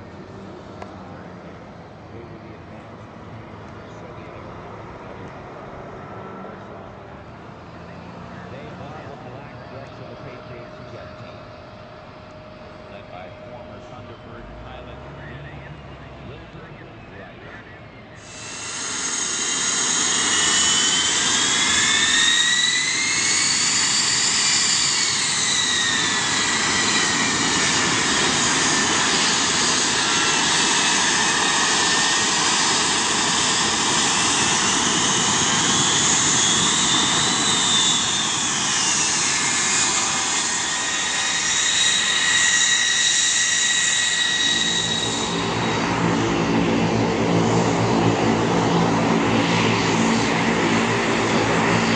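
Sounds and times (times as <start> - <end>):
jet engine whine: 0.0 - 51.9
propeller hum: 0.0 - 51.9.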